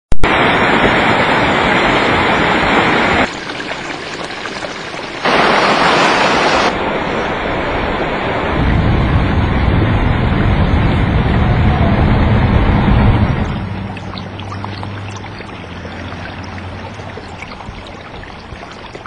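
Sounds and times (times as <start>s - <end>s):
river rushing over rapids: 0.2s - 3.5s, 5.0s - 8.6s.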